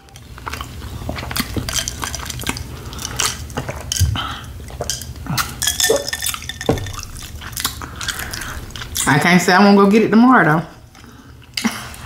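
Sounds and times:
wet chewing: 0:00.0 - 0:09.3
glass and tableware clinking: 0:05.6 - 0:08.4.

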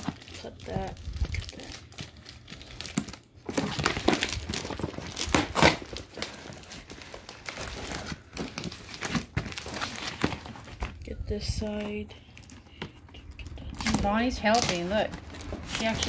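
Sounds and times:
packing tape crinkling and tearing: 0:00.0 - 0:16.0
cardboard box cut open: 0:03.5 - 0:06.7.

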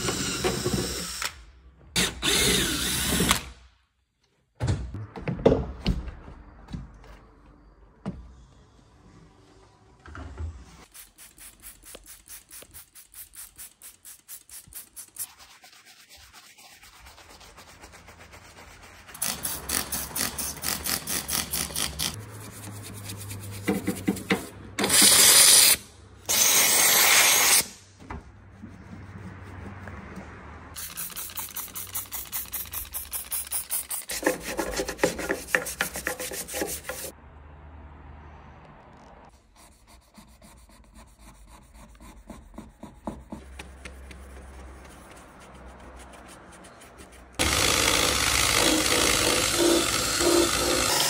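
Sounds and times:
brush scrubbing: 0:11.0 - 0:19.2, 0:30.8 - 0:37.1, 0:39.6 - 0:47.4.

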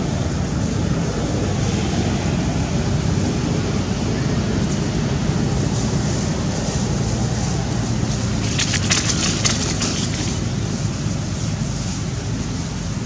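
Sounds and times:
wind rumbling on microphone: 0:00.0 - 0:13.0
dry leaves crackling: 0:04.3 - 0:13.0.

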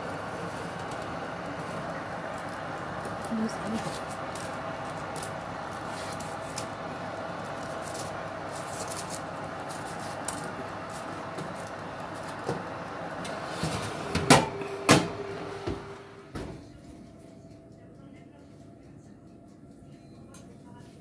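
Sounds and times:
steady hum: 0:00.0 - 0:20.3.

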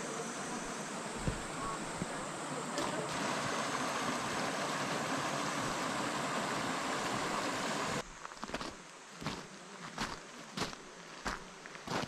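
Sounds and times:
mountain stream flowing over stones: 0:00.3 - 0:08.6
footsteps on gravel: 0:08.0 - 0:12.0.

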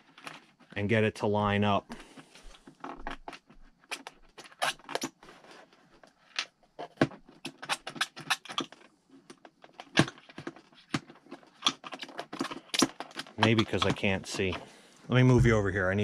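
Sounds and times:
small clicks taps and scratches: 0:00.0 - 0:00.8, 0:02.0 - 0:14.7.

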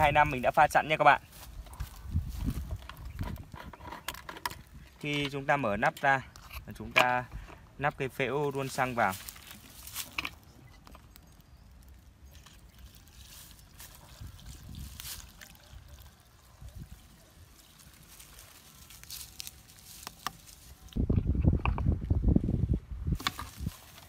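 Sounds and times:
fuel trickling through funnel: 0:10.9 - 0:20.1.

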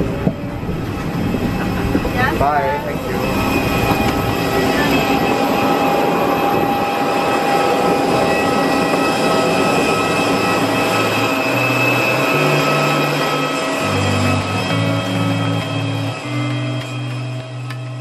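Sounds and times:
jet aircraft whine and rush: 0:00.0 - 0:18.0
high steady tones: 0:02.2 - 0:17.7
bass notes of background music: 0:13.8 - 0:18.0.

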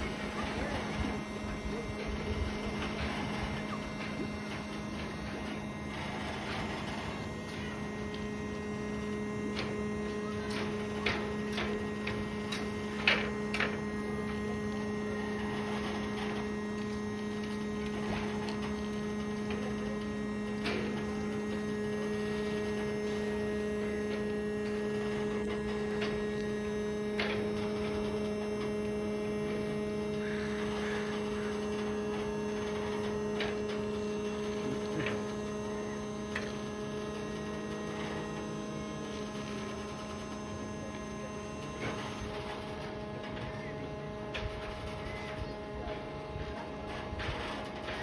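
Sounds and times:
steady droning hum: 0:00.0 - 0:48.0.

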